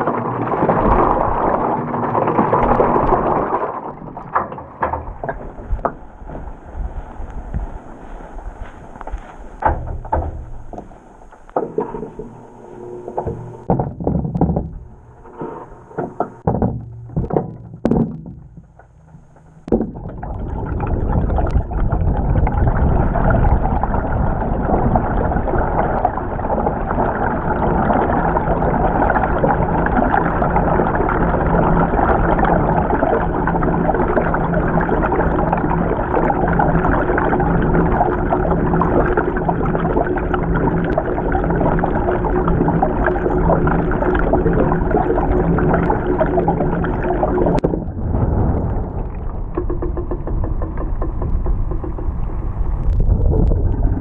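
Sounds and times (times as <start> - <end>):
muffled water churning in drum: 0.0 - 54.0
machine thunk: 9.6 - 20.1, 47.6 - 52.3
low machine hum: 9.8 - 54.0.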